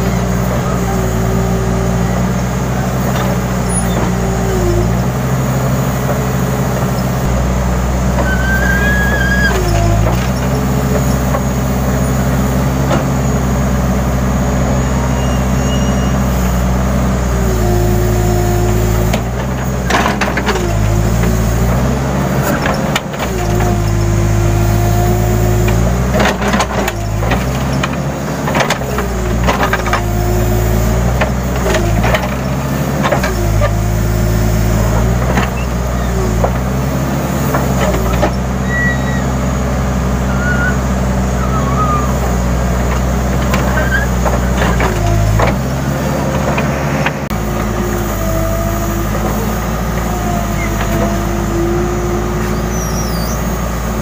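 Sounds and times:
diesel engine running: 0.0 - 54.0
hydraulic whine: 0.0 - 54.0.

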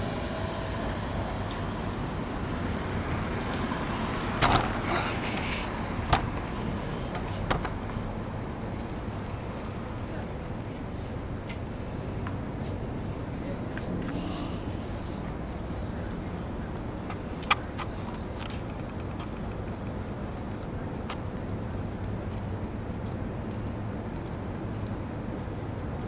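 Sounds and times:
insect trilling: 3.1 - 8.4.

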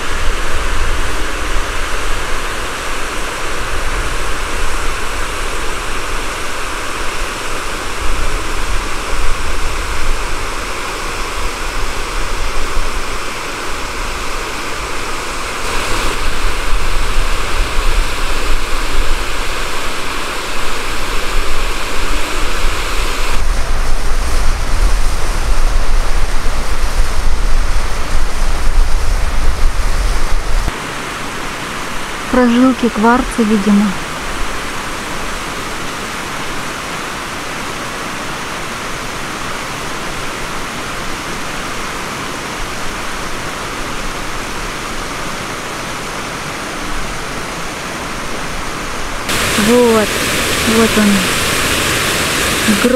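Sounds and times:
wind rumble on microphone: 0.0 - 30.7
river rushing water: 0.0 - 52.9.

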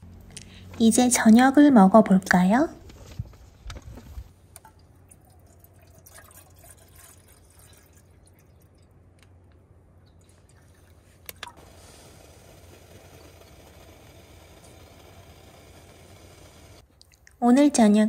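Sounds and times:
water dripping and trickling: 4.5 - 9.4.

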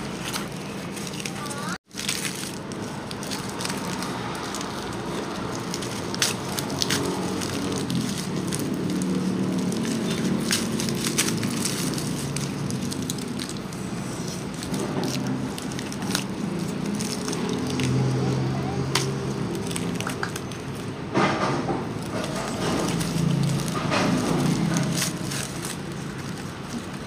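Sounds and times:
paper and plastic rustling: 0.0 - 27.0.

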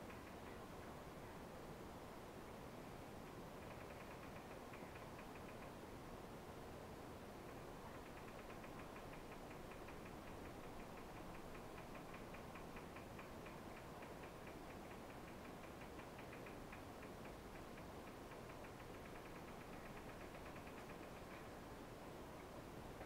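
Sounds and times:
rapid even ticking: 0.0 - 0.6, 3.5 - 5.8, 7.4 - 21.6
low room hiss: 0.0 - 23.0.

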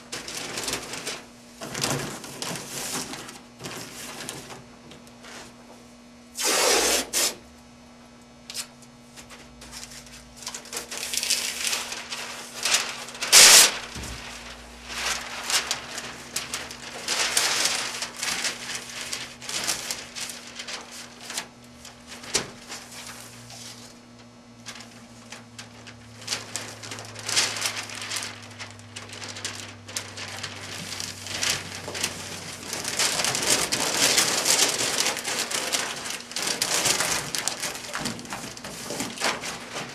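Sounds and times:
paper crinkling and rustling: 0.0 - 5.8, 8.5 - 39.9
tape being pulled and torn: 6.4 - 7.4, 13.3 - 14.1.

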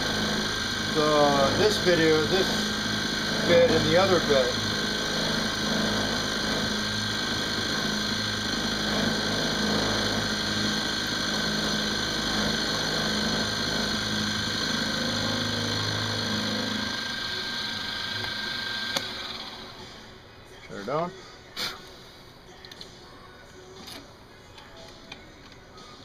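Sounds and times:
milling machine cutting metal: 0.0 - 20.0.

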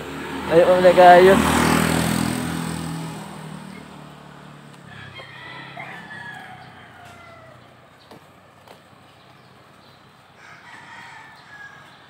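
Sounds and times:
passing vehicle: 0.0 - 12.0
rooster crowing: 4.8 - 7.8, 10.4 - 12.0.

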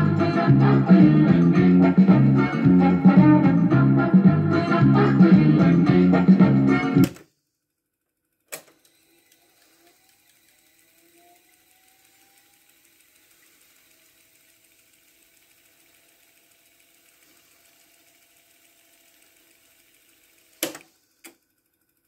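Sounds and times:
organ music from tape deck: 0.0 - 7.2
tape winding whir and ticking: 8.3 - 22.0.

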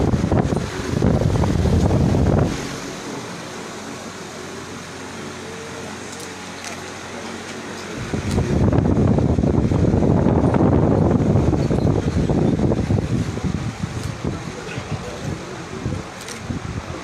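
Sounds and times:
low rumbling on microphone: 0.0 - 4.5, 6.7 - 17.0
room hum: 0.0 - 17.0
faint voices: 0.4 - 8.6, 13.1 - 17.0.

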